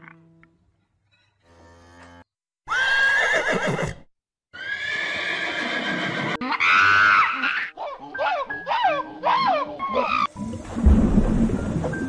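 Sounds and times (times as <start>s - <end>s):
horse whinnying: 2.7s - 7.8s.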